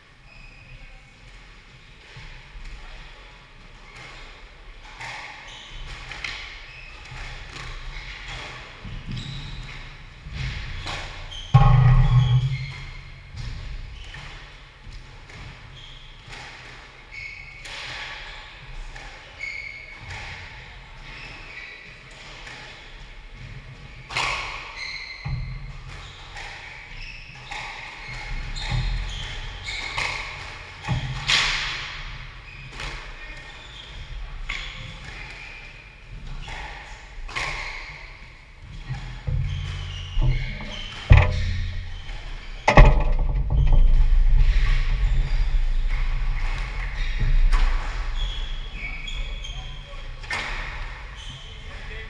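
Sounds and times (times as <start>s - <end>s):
shoes squeaking on wooden floor: 7.9s - 14.3s, 37.4s - 44.4s
squash ball smacking: 10.4s - 13.7s, 39.2s - 45.0s
heavy thud: 39.3s - 44.8s.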